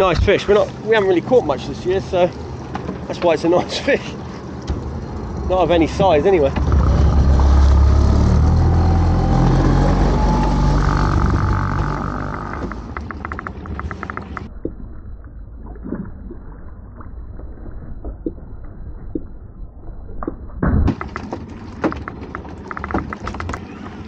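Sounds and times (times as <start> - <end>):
boat engine running: 0.0 - 14.6
quiet water noise: 0.0 - 24.0.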